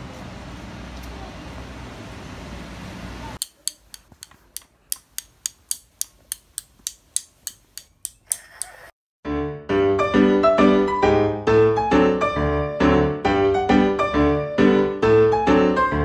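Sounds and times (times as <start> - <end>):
street traffic hum: 0.0 - 7.8
paintbrush tapping against pencil: 3.4 - 8.8.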